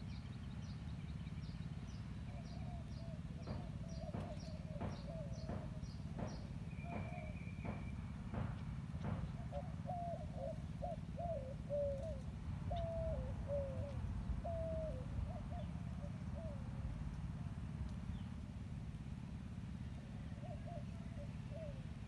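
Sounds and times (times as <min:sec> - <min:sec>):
bird calling low notes: 0:02.2 - 0:16.8.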